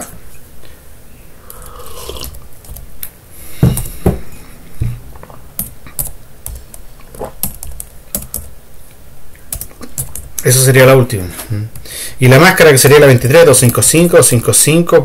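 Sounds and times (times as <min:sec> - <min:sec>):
typing on computer keyboard: 0:05.6 - 0:08.5, 0:09.5 - 0:10.4.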